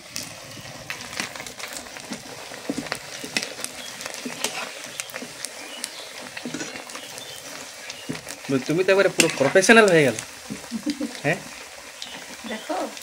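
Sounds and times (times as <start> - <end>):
food deep-frying in oil: 0.0 - 13.0.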